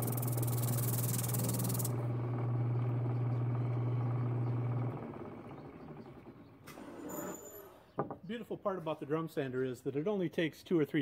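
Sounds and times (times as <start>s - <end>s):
sandpaper drum hissing on wood: 0.0s - 1.9s
drum sander motor hum: 0.0s - 6.6s.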